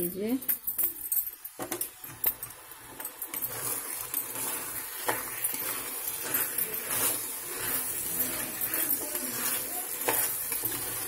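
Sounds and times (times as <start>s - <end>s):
chicken sizzling in a pan: 1.5s - 11.0s
metal spatula scraping pan: 2.8s - 11.0s.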